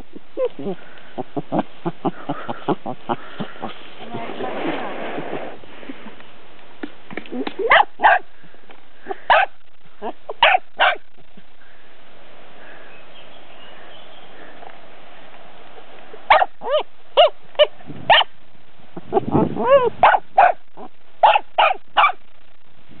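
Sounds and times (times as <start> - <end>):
faint steady hiss: 0.0 - 23.0
dog barking: 7.6 - 8.2, 9.3 - 9.6, 10.4 - 11.0, 16.3 - 18.3, 19.6 - 20.6, 21.2 - 22.3
dog yelping: 7.6 - 8.2, 9.3 - 11.0, 16.3 - 18.3, 19.0 - 22.2.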